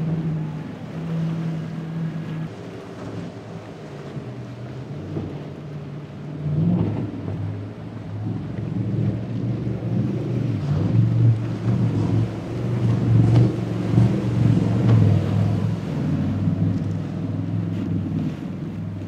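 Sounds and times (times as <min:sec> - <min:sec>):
boat engines droning: 0:00.0 - 0:19.0
water splashes and hull slaps: 0:00.0 - 0:19.0.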